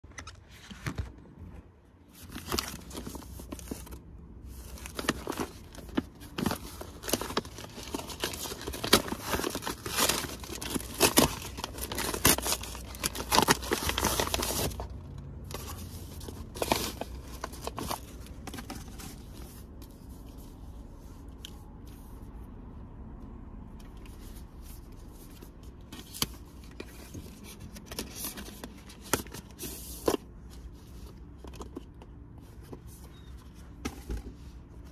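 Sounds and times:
paper packaging rustling: 0.0s - 22.0s, 23.8s - 34.9s
mailer tearing and crinkling: 2.1s - 15.0s.

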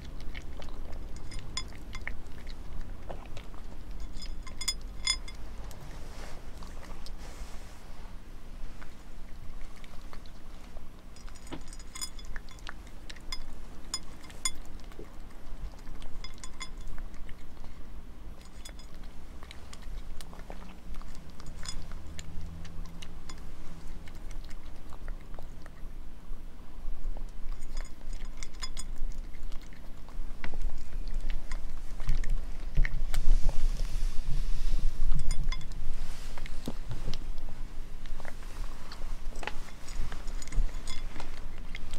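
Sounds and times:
cat crunching dry kibble: 0.0s - 25.9s, 27.0s - 41.9s
kibble clinking on ceramic plate: 0.9s - 2.6s, 3.6s - 5.4s, 11.1s - 14.7s, 15.9s - 17.4s, 18.4s - 20.4s, 21.0s - 23.5s, 27.5s - 29.7s, 35.1s - 35.8s, 40.2s - 41.8s.

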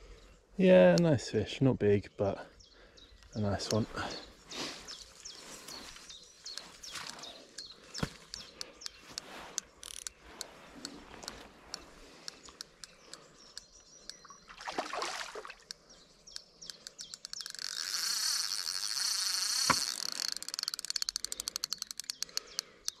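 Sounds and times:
small birds chirping: 0.0s - 23.0s
fishing reel ratcheting: 9.6s - 10.2s, 16.6s - 23.0s
fish splashing in water: 14.5s - 15.7s.

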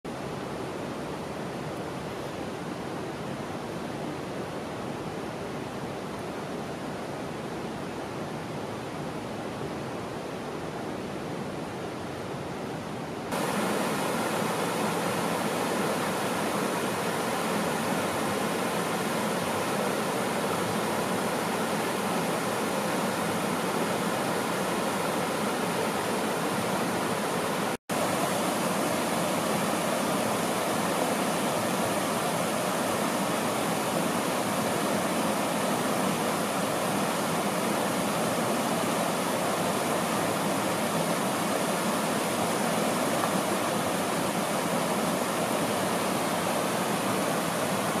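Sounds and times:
river rushing over rocks: 0.1s - 48.0s.

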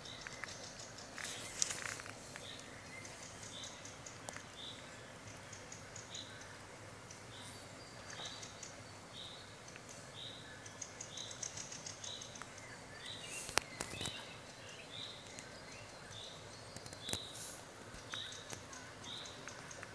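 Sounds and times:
small birds chirping: 0.0s - 19.9s.

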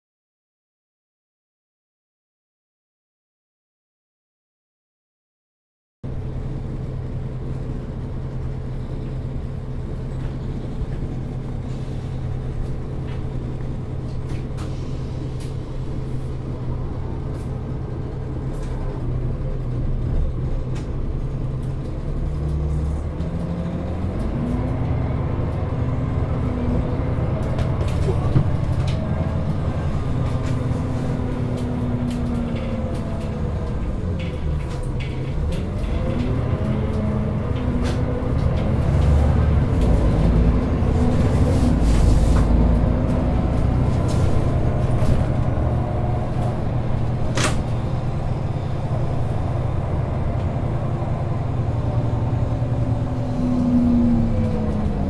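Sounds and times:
bus engine idling and accelerating: 6.0s - 55.0s
bus body rattling: 6.2s - 55.0s.

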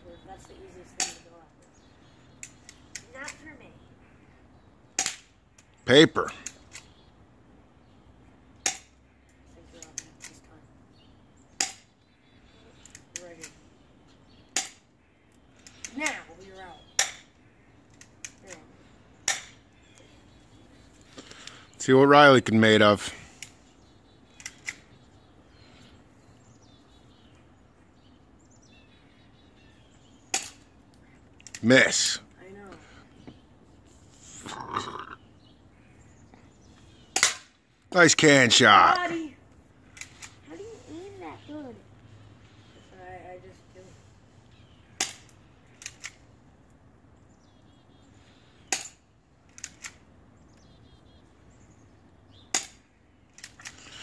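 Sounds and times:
faint birdsong: 0.0s - 54.0s
faint bird chirps: 10.5s - 21.9s.

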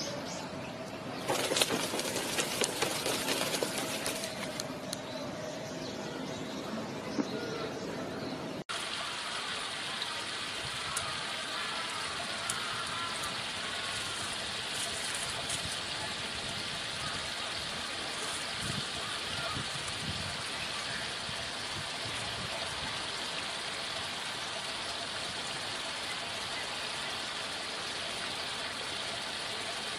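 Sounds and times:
water rushing: 1.0s - 5.0s, 8.7s - 29.9s.

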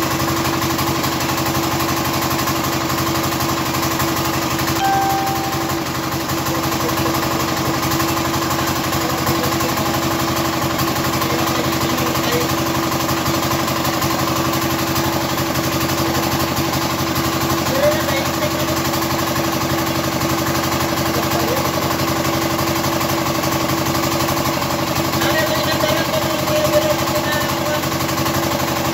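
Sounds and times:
diesel engine clattering: 6.1s - 28.9s.

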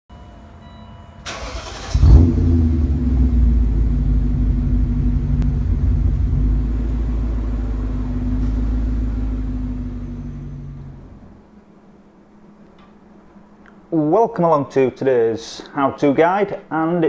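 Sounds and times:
engine starter cranking: 1.2s - 2.6s
car engine revving and idling: 1.3s - 11.4s.

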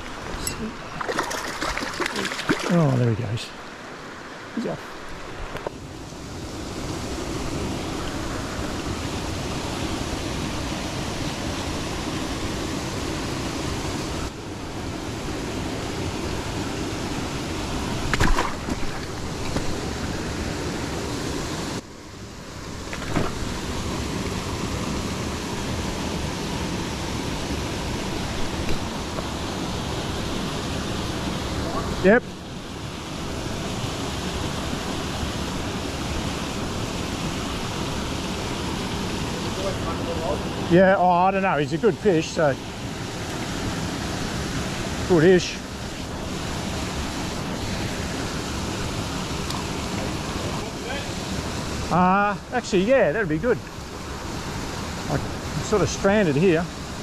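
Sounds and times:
water cascading into a pool: 1.0s - 3.4s, 33.0s - 57.0s.

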